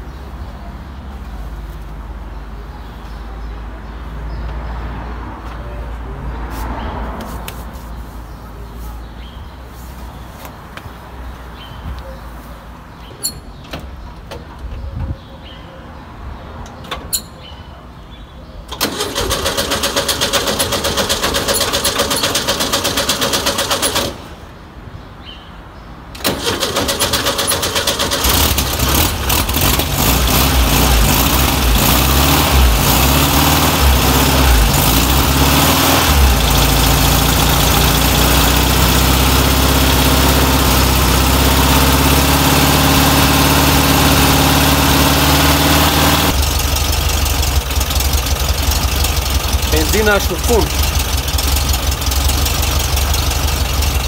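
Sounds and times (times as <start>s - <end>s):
starter motor cranking: 18.7s - 24.2s, 26.2s - 30.9s
engine idling unevenly: 27.9s - 54.0s.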